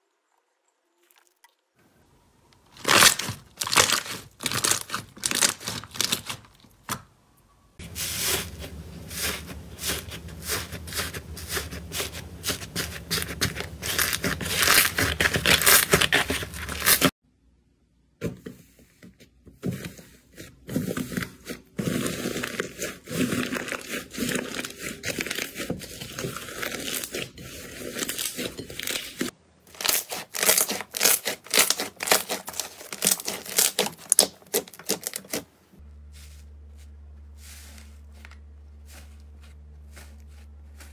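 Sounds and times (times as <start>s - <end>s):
slime crust crunching: 2.7s - 6.7s, 7.8s - 17.1s, 21.8s - 35.5s
slime crackling and popping: 2.8s - 6.4s, 29.7s - 35.4s
low steady hum: 35.6s - 40.9s.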